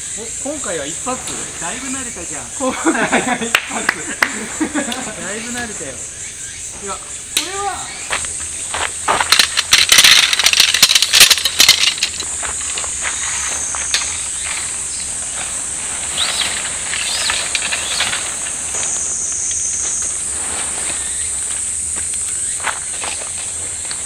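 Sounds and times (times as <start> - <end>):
high insect chirring: 0.0 - 24.0
sharp metallic clinks: 9.0 - 15.0, 16.1 - 19.7.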